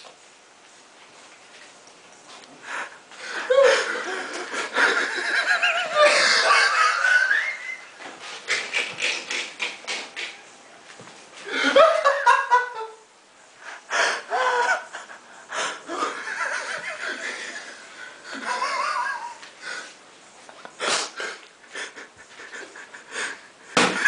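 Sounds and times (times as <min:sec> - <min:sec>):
people laughing: 0:03.3 - 0:10.3, 0:11.5 - 0:13.0, 0:15.9 - 0:19.5, 0:21.7 - 0:24.0.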